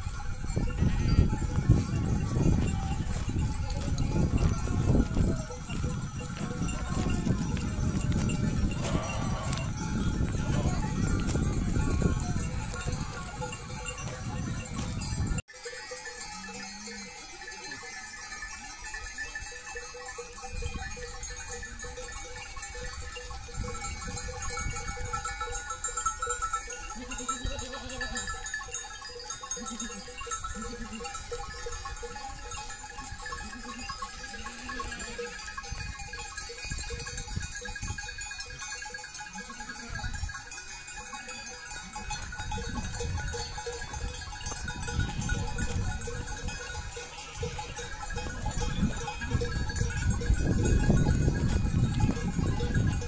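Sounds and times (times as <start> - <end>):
sheep bleating: 8.5 - 13.6, 27.0 - 28.4.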